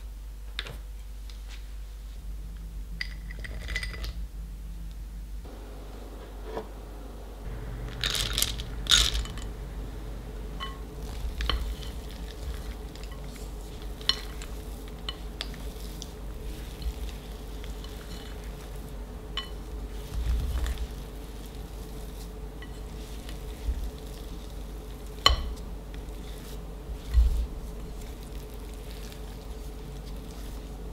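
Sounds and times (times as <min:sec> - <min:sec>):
chocolate chips rattling into glass bowl: 0:07.8 - 0:09.5.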